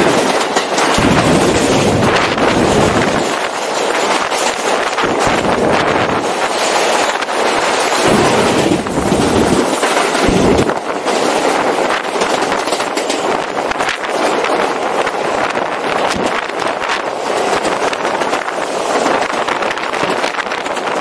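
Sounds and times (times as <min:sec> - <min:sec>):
low wind buffets: 0:00.0 - 0:21.0
rail clicks: 0:00.0 - 0:21.0
train wheels running: 0:00.0 - 0:21.0
wind rushing on microphone: 0:00.0 - 0:21.0.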